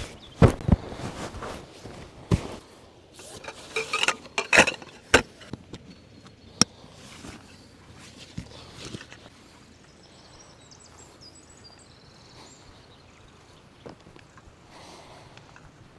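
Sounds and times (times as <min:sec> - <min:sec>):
canvas bundle rustling: 0:00.0 - 0:05.5
knocking and clinking: 0:03.4 - 0:05.5.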